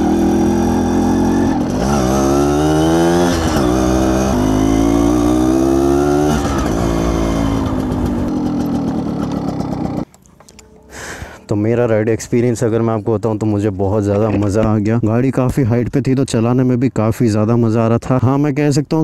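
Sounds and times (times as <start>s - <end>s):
two-stroke motorcycle engine: 0.0s - 10.1s.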